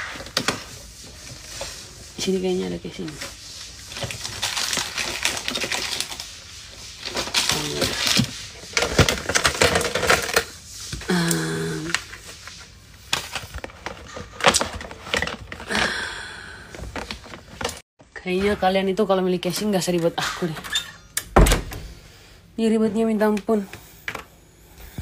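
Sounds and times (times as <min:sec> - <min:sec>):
person humming: 0:07.5 - 0:08.0, 0:11.0 - 0:12.0
plastic phone cases clattering: 0:08.0 - 0:10.4.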